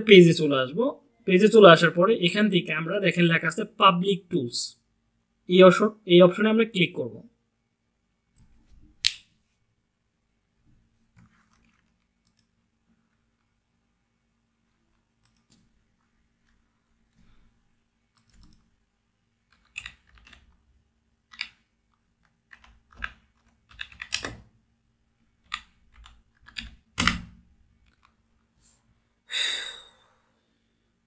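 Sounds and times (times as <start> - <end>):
computer keys clicking: 11.4 - 12.6, 15.2 - 15.6, 18.1 - 18.7, 19.5 - 20.6, 21.3 - 24.4, 25.4 - 27.2.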